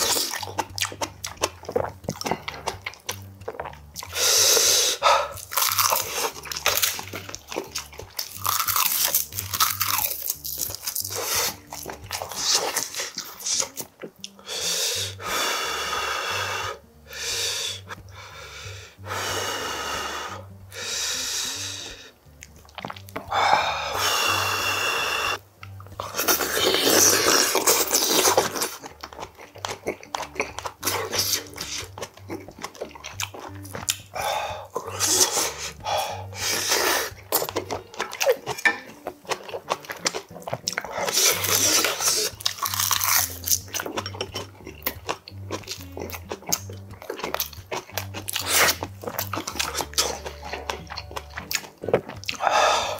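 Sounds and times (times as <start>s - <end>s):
slurping and chewing: 0.0s - 52.9s
man breathing through mouth: 14.4s - 22.2s, 23.3s - 25.4s, 52.4s - 52.9s.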